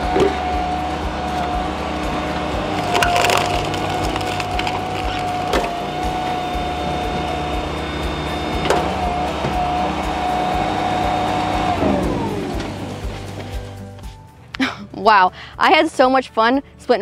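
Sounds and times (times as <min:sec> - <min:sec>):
firewood processor whine: 0:00.0 - 0:13.8
wood cracking and splintering: 0:02.7 - 0:05.7.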